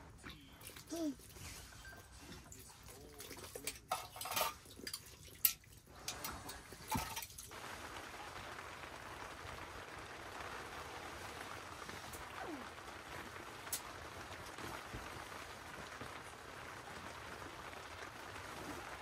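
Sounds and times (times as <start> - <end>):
rain on a tent: 0.0 - 19.0
kitchen things knocking and clinking: 3.7 - 7.4.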